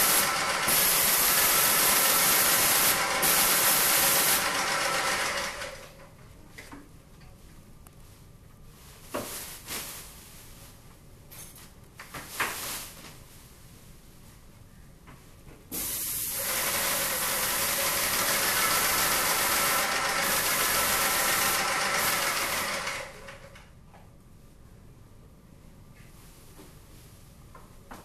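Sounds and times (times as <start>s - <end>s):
sprayer hissing: 0.0s - 5.4s, 15.7s - 22.9s.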